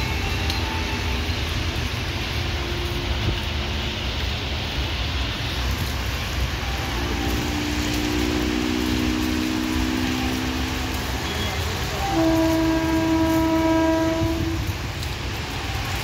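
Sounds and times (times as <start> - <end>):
rain falling: 0.0 - 16.0
locomotive horn blast: 6.6 - 14.9.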